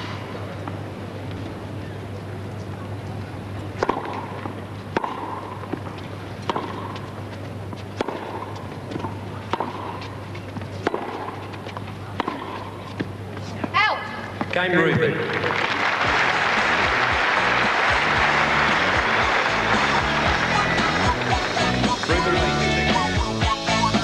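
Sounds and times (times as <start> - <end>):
tennis ball hits: 3.8 - 7.2, 7.8 - 13.7.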